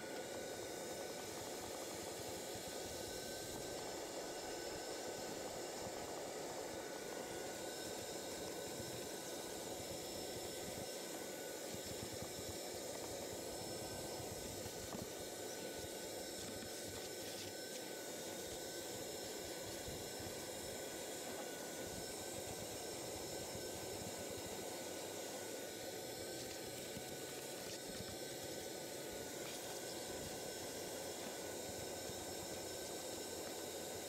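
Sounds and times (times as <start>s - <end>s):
vacuum cleaner running: 0.0s - 34.0s.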